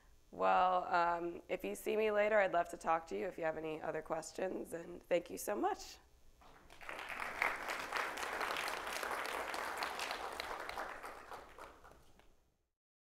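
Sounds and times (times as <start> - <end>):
audience applauding: 6.4 - 12.3.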